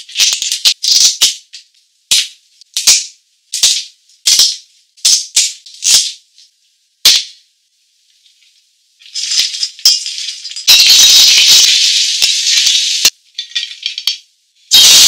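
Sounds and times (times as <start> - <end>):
crab deep-frying in hot oil: 9.0 - 14.1, 14.7 - 15.0.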